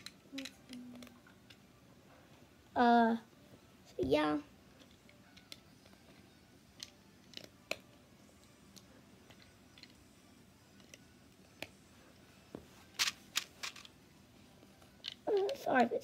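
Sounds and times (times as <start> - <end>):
plastic bricks clicking together: 0.0 - 1.6, 13.0 - 13.9.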